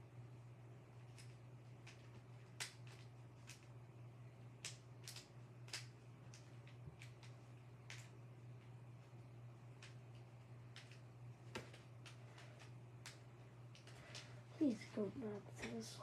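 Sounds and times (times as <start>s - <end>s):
faint low hum: 0.0s - 16.0s
puzzle cube clicking: 4.6s - 8.1s.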